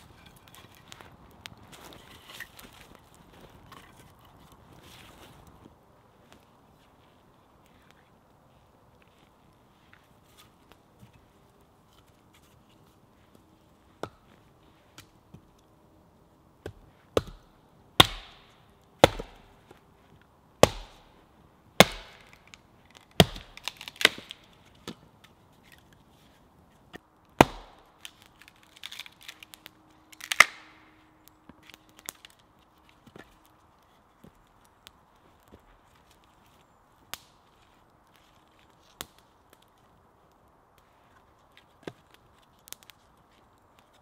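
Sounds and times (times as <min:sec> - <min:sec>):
axe chopping wood: 0:16.6 - 0:19.6, 0:20.6 - 0:21.2, 0:21.8 - 0:22.5, 0:23.2 - 0:25.0, 0:27.4 - 0:28.2.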